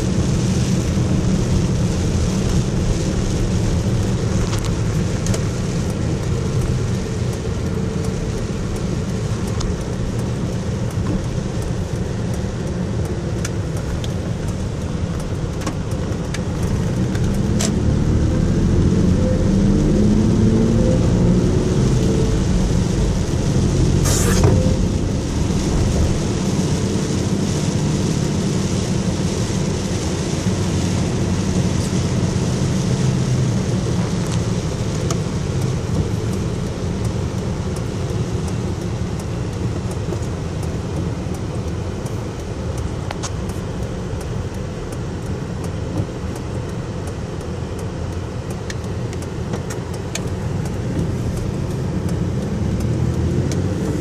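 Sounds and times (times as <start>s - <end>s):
engine and tyre rumble: 0.0s - 54.0s
light ticks: 3.8s - 17.8s, 33.9s - 54.0s
hiss of tyre spray: 23.6s - 24.8s.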